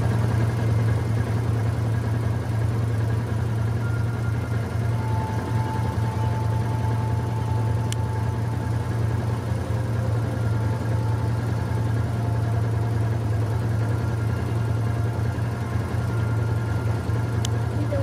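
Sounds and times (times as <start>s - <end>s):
engine idling hum: 0.0s - 18.0s.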